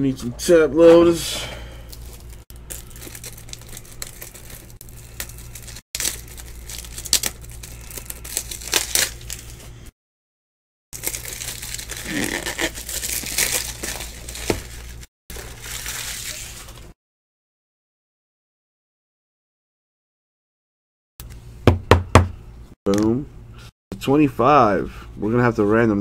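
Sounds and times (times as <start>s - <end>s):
plastic packaging crinkling: 1.9s - 9.9s, 11.0s - 17.0s.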